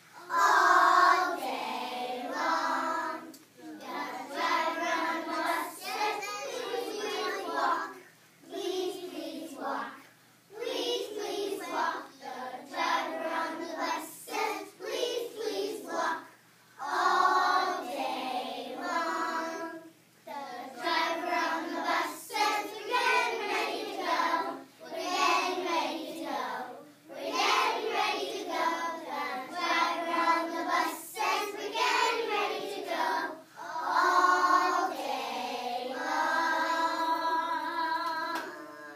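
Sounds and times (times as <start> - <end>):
children singing in unison: 0.2 - 9.8, 10.6 - 38.9.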